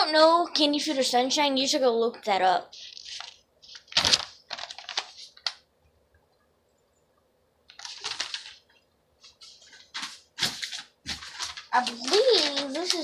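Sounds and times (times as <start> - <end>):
paper rustling and crinkling: 2.7 - 5.6, 7.7 - 13.0.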